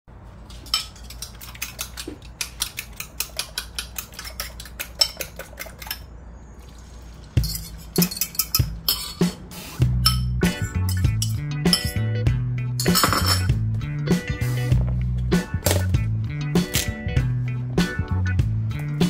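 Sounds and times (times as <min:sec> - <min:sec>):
fork clinking on ceramic bowl: 0:07.4 - 0:09.2, 0:10.0 - 0:12.0, 0:12.8 - 0:13.5.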